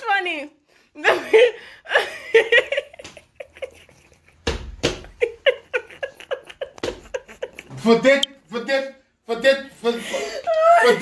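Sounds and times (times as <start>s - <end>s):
person laughing: 5.1s - 8.1s.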